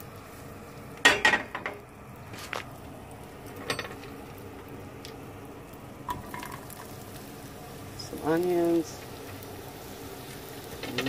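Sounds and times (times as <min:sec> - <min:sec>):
frying pan clanking on metal grate: 0:01.0 - 0:01.8, 0:03.6 - 0:04.1.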